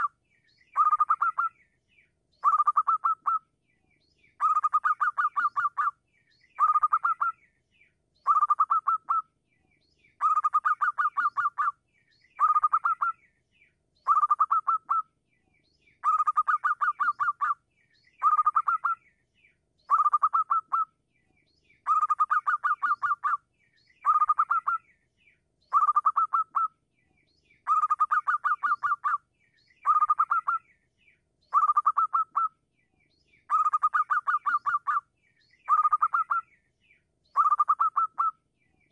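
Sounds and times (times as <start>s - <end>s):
dove calling staccato notes: 29.8s - 30.6s, 31.5s - 32.5s, 33.5s - 35.0s, 35.7s - 36.4s, 37.4s - 38.3s.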